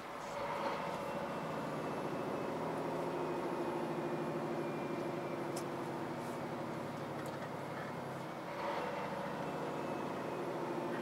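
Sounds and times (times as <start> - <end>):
diesel truck engine humming: 0.0 - 11.0.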